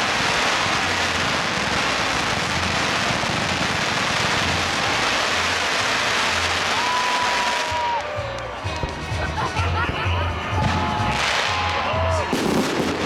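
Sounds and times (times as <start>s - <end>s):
fireworks crackling: 0.0s - 13.0s.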